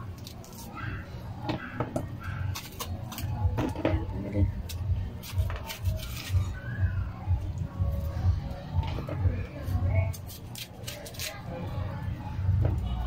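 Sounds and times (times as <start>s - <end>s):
knife scraping gourd: 0.0s - 6.8s, 9.5s - 11.8s.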